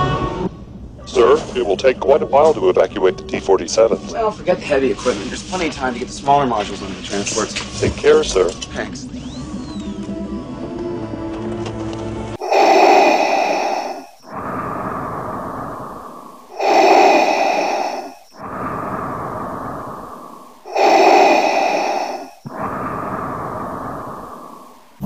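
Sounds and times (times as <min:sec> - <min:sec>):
mechanical respirator breathing: 0:12.4 - 0:25.0.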